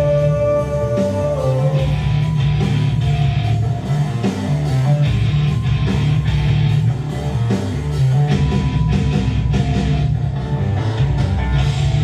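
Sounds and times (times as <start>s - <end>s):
electric guitar: 0.0s - 12.0s
hard rock music: 0.0s - 12.0s.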